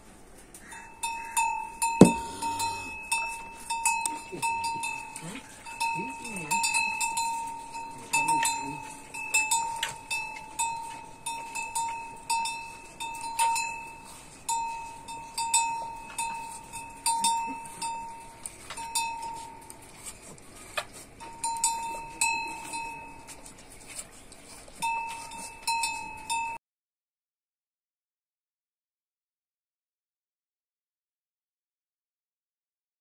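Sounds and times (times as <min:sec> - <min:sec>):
small metal bell ringing: 0:00.8 - 0:19.8, 0:21.2 - 0:23.5, 0:24.8 - 0:26.6.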